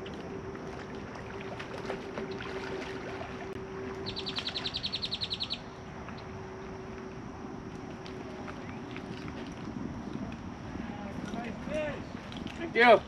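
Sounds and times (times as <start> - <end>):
steady low hum: 0.0 - 13.0
bird trilling: 4.0 - 5.7.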